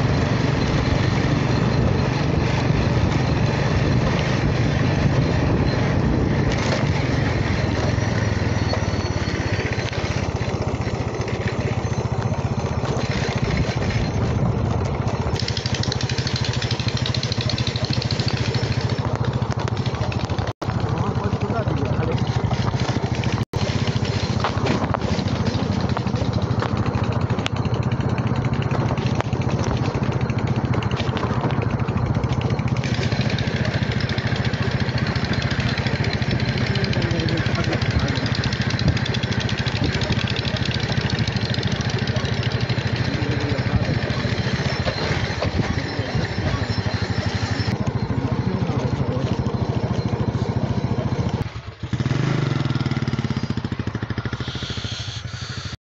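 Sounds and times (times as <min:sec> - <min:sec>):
vehicle engine running: 0:00.0 - 0:55.8.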